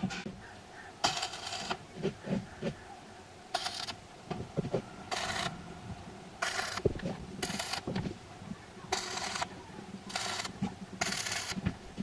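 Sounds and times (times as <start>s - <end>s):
arc welder crackling and hissing: 8.9s - 9.5s, 10.1s - 11.7s.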